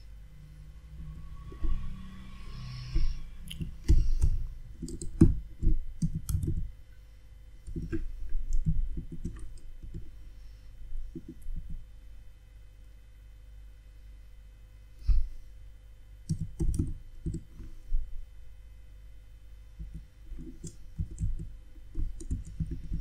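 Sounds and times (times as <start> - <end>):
faint steady hum: 0.0 - 23.0
keyboard typing clicks: 3.5 - 6.7, 16.3 - 17.5, 19.9 - 23.0.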